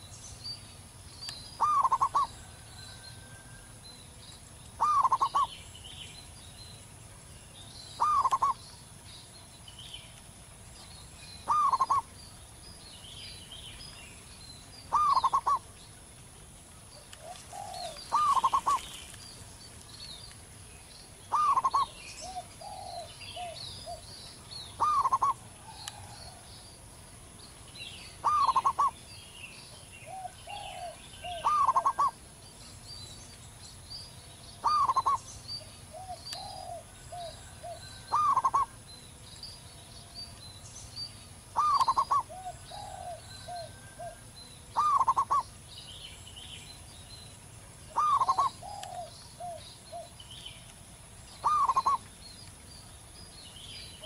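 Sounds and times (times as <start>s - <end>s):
small birds chirping: 0.0s - 54.0s
dove cooing: 1.6s - 3.6s, 4.8s - 5.5s, 8.0s - 8.6s, 11.4s - 12.1s, 14.9s - 15.7s, 17.0s - 19.0s, 21.3s - 24.1s, 24.8s - 26.5s, 28.2s - 29.0s, 30.0s - 32.2s, 34.6s - 35.2s, 35.9s - 38.8s, 41.5s - 45.5s, 47.9s - 50.2s, 51.4s - 52.0s.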